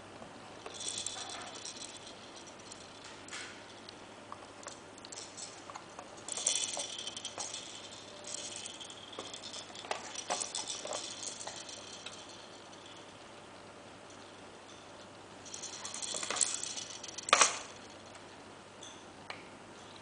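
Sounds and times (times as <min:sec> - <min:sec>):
plastic toy beads clicking and rattling: 0:00.6 - 0:13.2, 0:15.5 - 0:18.2.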